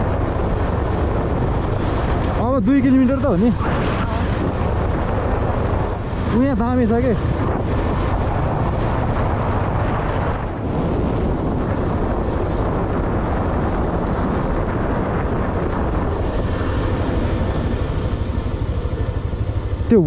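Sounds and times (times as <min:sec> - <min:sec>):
vehicle engine running: 0:00.0 - 0:20.0
wind buffeting microphone: 0:00.0 - 0:20.0.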